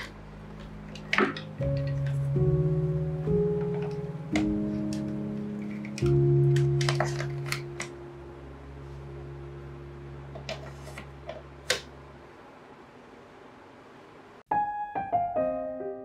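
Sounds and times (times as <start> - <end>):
background music low note: 0.0 - 12.3.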